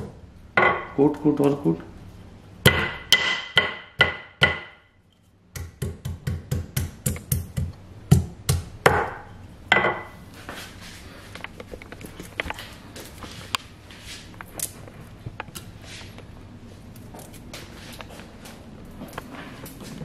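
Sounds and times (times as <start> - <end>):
pestle pounding in mortar: 2.6 - 4.8, 5.5 - 9.2.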